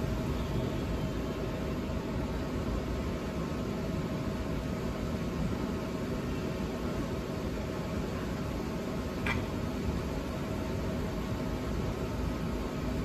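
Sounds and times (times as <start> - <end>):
room hiss: 0.0 - 13.0.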